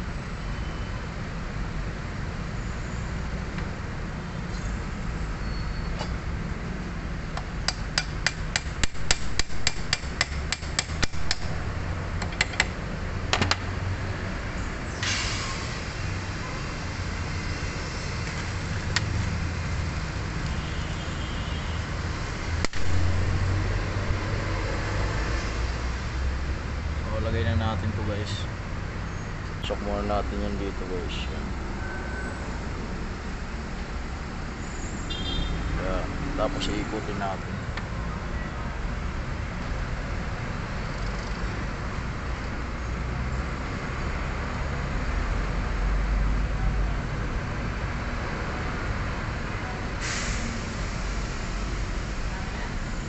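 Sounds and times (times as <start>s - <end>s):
hammer tapping on metal: 7.4s - 11.5s
short hiss: 15.0s - 16.0s, 50.0s - 51.5s.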